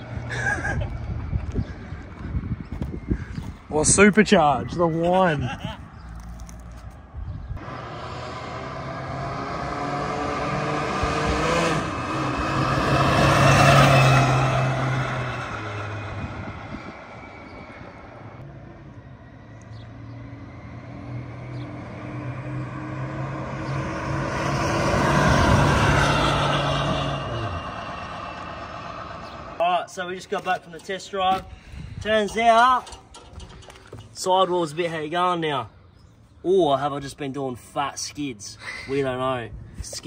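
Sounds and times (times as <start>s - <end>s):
car driving past: 7.6s - 29.6s.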